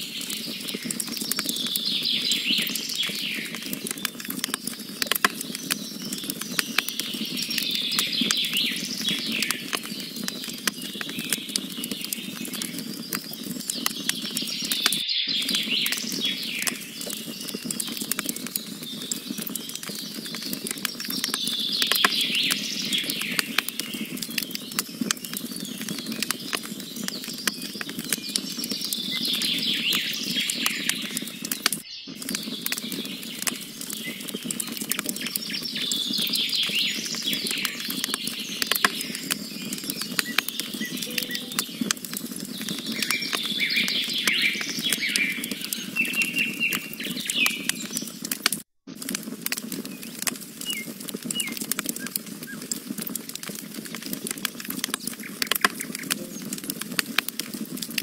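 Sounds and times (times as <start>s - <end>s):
songbird singing: 0.0s - 4.2s, 5.4s - 48.1s, 55.5s - 56.8s
campfire crackling and popping: 0.0s - 58.0s.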